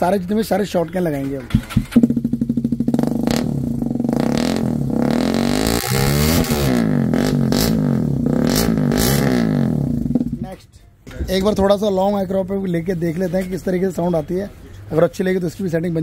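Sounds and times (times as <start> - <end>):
motorcycle engine revving: 1.5 - 10.4.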